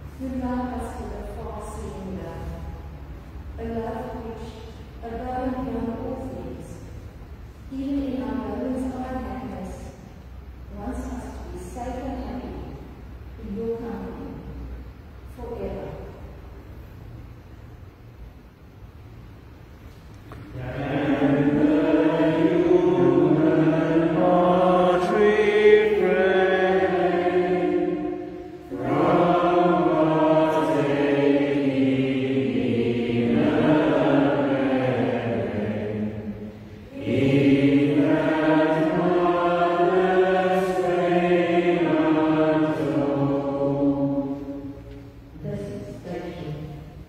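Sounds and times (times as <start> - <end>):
voices singing a slow hymn: 20.2 - 47.0.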